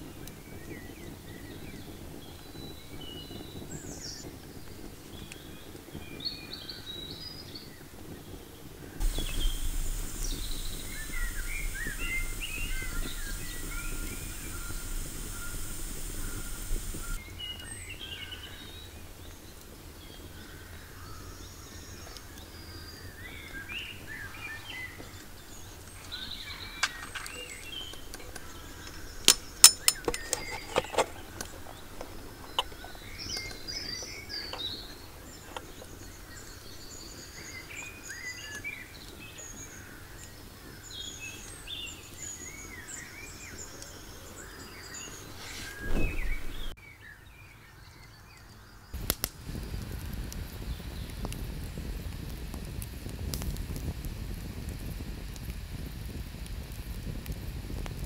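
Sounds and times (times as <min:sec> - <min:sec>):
rustle: 0:00.0 - 0:58.0
lantern clicking: 0:09.0 - 0:17.2, 0:25.9 - 0:33.7
birds chirping and singing: 0:09.0 - 0:18.7, 0:21.1 - 0:38.7, 0:40.9 - 0:48.5.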